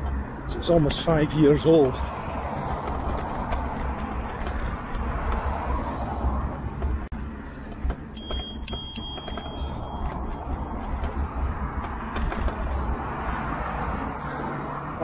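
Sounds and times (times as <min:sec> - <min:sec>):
bicycle rattling and clicking: 0:00.0 - 0:13.2
bicycle tyre and wind rumble: 0:00.0 - 0:15.0
thin high tone: 0:08.2 - 0:10.8.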